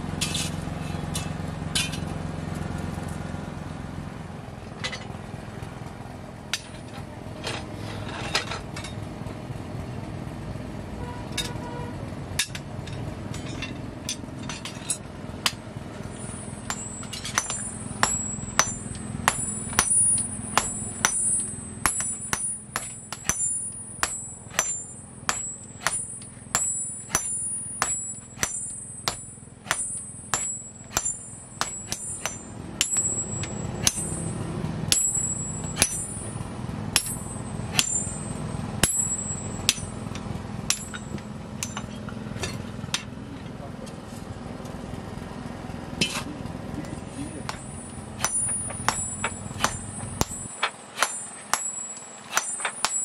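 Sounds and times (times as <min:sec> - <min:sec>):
low steady hum: 0:00.0 - 0:53.0
hammer ringing on anvil: 0:13.4 - 0:43.1, 0:47.4 - 0:53.0.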